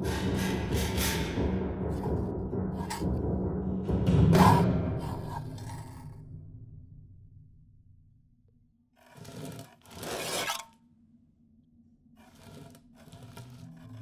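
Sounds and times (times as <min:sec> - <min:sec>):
loud scraping: 0:00.0 - 0:06.4, 0:09.0 - 0:10.7.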